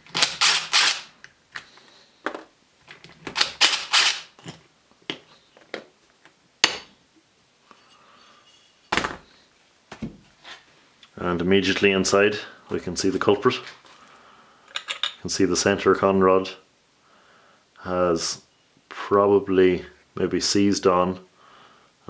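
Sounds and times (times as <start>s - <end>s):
impact driver rattling: 0.0s - 1.1s, 3.2s - 4.5s.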